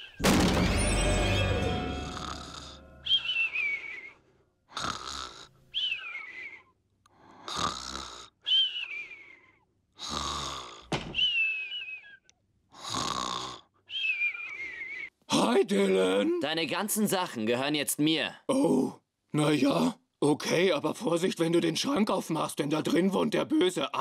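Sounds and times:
man snoring: 4.8 - 5.5, 7.4 - 8.3, 10.0 - 10.9, 12.8 - 13.7.

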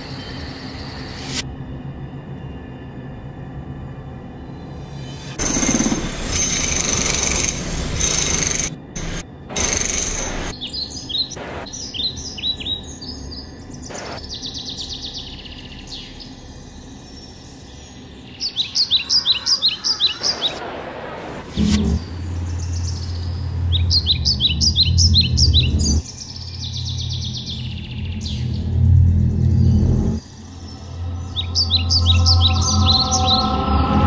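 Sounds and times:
songbirds chirping and trilling: 0.0 - 34.0
loud harsh steady noise: 4.8 - 10.6, 28.5 - 34.0.

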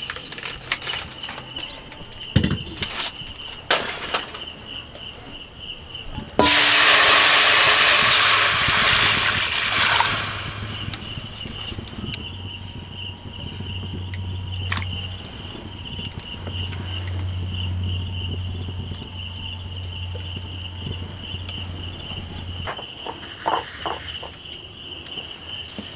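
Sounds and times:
water hissing in hot wok: 6.4 - 11.9.

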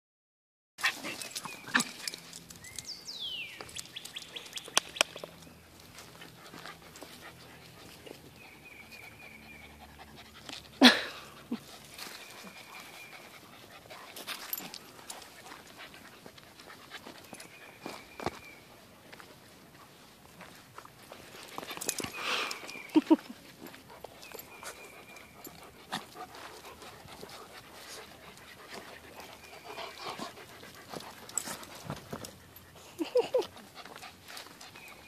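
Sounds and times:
dogs panting: 0.8 - 2.7, 3.6 - 35.0
light clicks and scuffs: 11.6 - 35.0.

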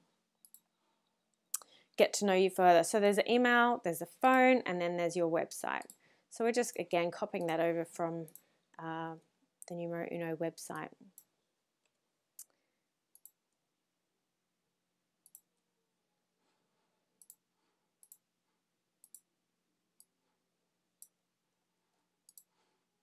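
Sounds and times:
faint computer mouse clicks: 0.4 - 0.7, 22.3 - 22.5.

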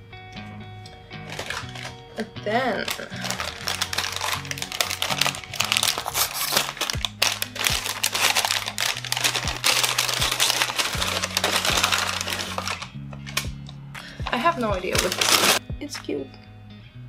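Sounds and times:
paper bag crinkling: 1.2 - 2.2, 2.8 - 15.6.

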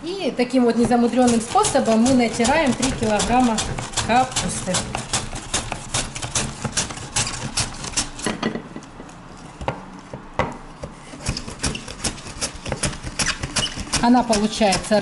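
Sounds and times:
cabbage shredding on a wooden shredder: 0.8 - 8.3, 11.2 - 15.0.

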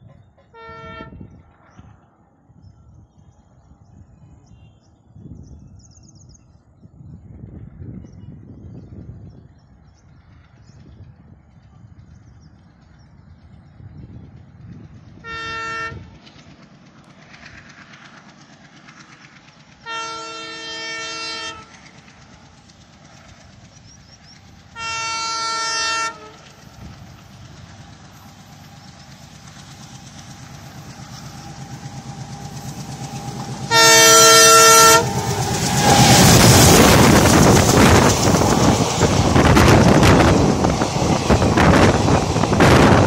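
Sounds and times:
locomotive horn blasts: 0.5 - 1.2, 15.2 - 16.0, 19.9 - 21.7, 24.8 - 26.4, 33.6 - 35.3
diesel engine rumble: 26.3 - 43.0.

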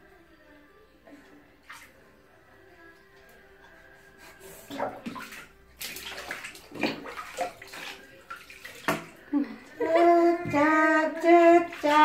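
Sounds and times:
water splashing in a tub: 1.6 - 2.0, 4.6 - 12.0
person singing slow melody: 9.3 - 12.0.

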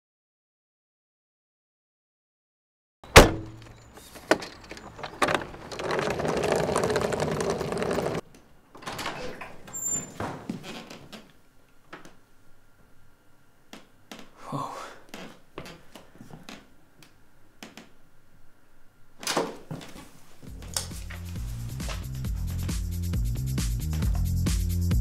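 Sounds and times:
door opening: 3.1 - 11.3, 19.2 - 22.7
wheeled suitcase rolling: 3.7 - 8.2
electronic music: 20.5 - 25.0.

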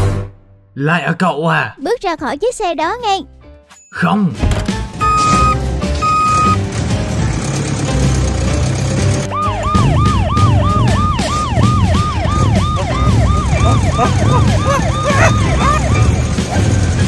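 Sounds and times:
background music: 1.6 - 17.0
police siren wailing: 5.0 - 6.6, 9.3 - 17.0.

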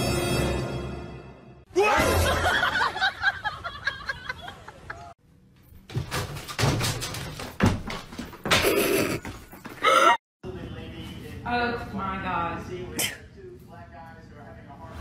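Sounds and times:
music: 0.0 - 1.7.

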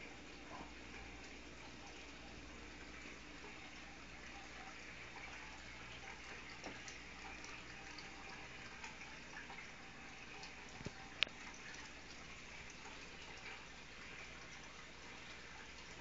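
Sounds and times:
aquarium filter water trickle: 0.0 - 16.0
light ticks: 10.8 - 11.4.

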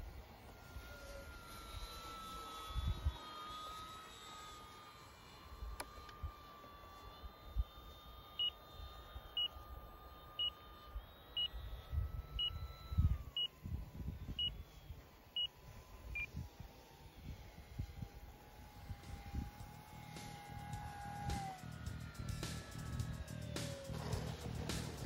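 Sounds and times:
model aircraft whine: 0.0 - 25.0
wind on microphone: 11.6 - 15.0.

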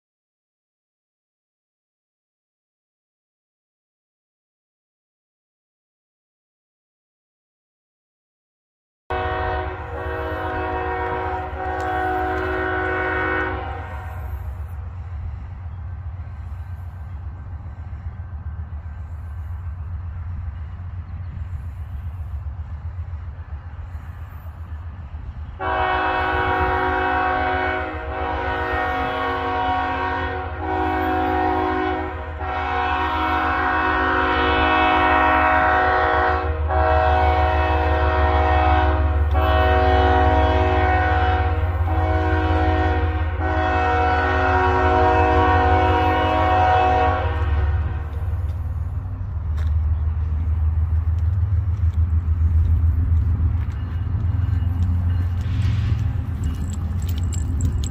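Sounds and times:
train air horn chord: 9.1 - 14.7, 25.6 - 48.7
train rumble: 9.1 - 57.9.

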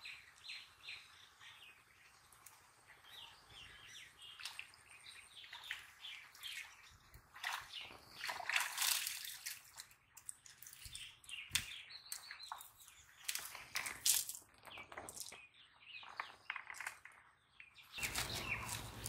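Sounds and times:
birds chirping: 0.0 - 19.0
water splashing and dripping: 4.2 - 15.4, 17.9 - 19.0.

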